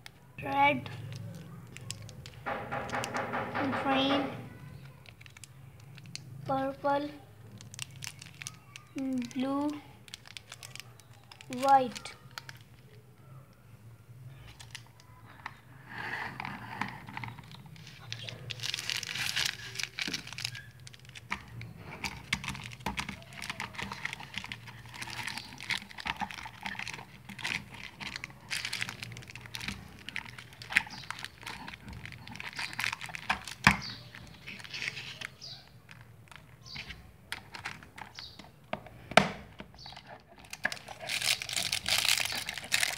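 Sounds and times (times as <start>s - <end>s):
cellophane wrappers crinkling: 0.9s - 3.2s, 4.5s - 6.4s, 7.4s - 13.0s, 14.3s - 15.6s, 16.4s - 38.6s, 39.8s - 42.9s
plastic toys knocking on wooden table: 2.4s - 4.5s.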